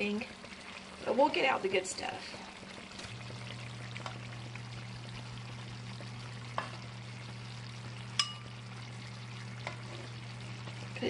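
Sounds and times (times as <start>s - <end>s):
steady low hum: 2.2s - 11.0s
spoon clinking on ceramic bowl: 8.2s - 8.5s.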